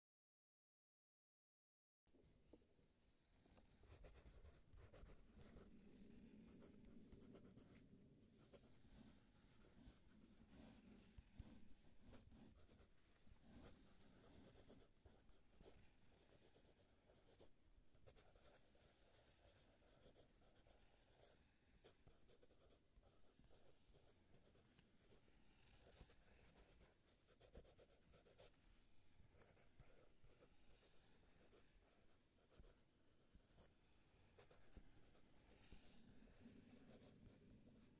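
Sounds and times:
stylus scratching on tablet screen: 6.5 - 28.6, 29.4 - 37.9.

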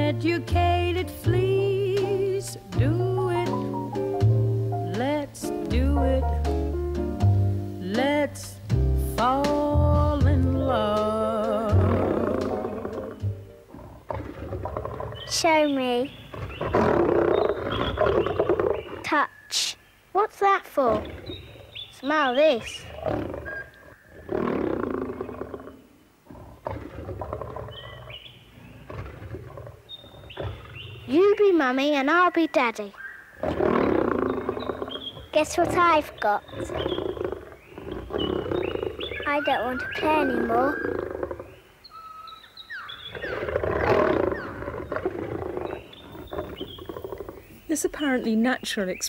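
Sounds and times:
lion growling: 10.6 - 19.2, 20.8 - 31.4, 33.4 - 41.6, 43.0 - 48.0.

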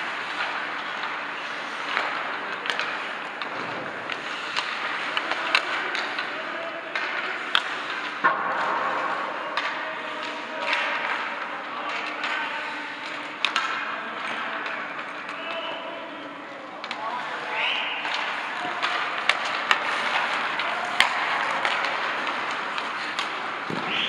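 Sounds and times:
skate blades scraping on ice: 0.0 - 6.2, 18.1 - 24.0
hockey sticks and pucks clacking: 0.0 - 24.0.

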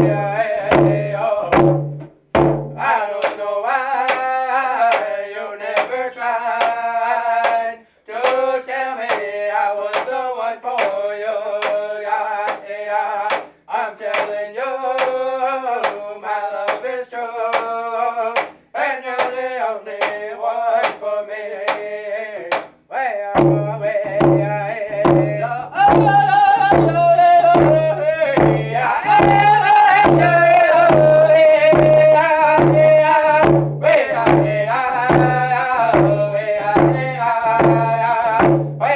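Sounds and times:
men singing: 0.0 - 2.2, 2.8 - 38.9
hand drum beating: 0.0 - 3.4, 23.4 - 38.9.

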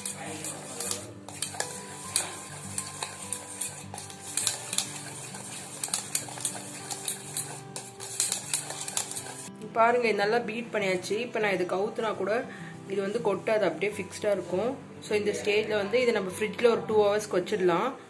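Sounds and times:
whisk clicking against metal bowl: 0.0 - 9.5.

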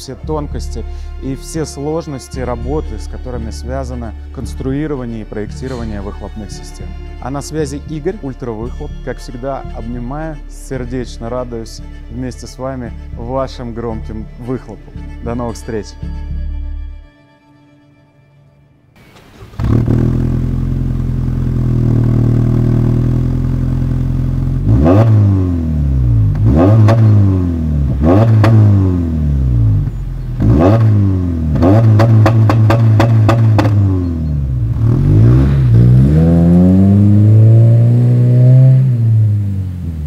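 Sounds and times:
car engine revving: 19.0 - 40.0.

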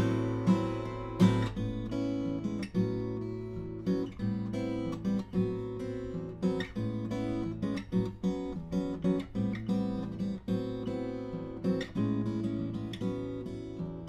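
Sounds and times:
fingerstyle acoustic guitar: 0.0 - 14.0.

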